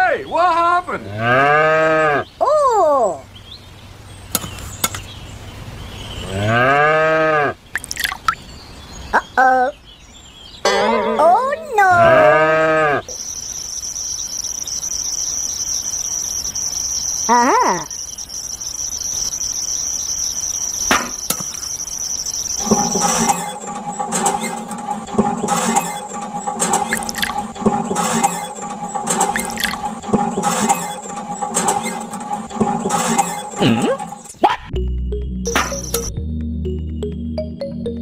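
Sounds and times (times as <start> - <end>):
insects chirping: 7.6 - 34.4
background music with steady beat: 34.7 - 38.0.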